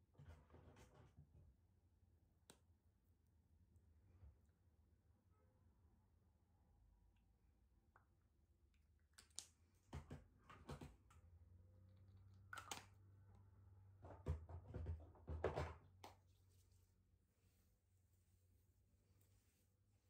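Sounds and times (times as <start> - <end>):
hands rubbing fleece sleeves: 16.1 - 20.0.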